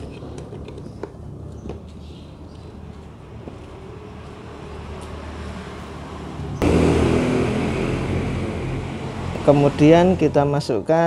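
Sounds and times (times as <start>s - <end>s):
vehicle engine running: 5.8s - 10.6s.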